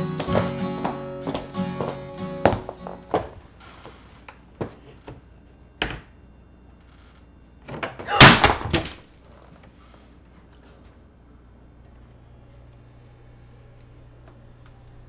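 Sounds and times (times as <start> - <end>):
picture frame crashing down: 8.1 - 9.2
glass cracking: 8.1 - 9.3.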